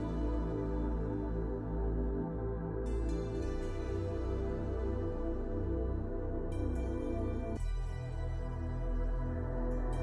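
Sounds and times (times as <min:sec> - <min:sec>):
slow ambient music: 0:00.0 - 0:10.0.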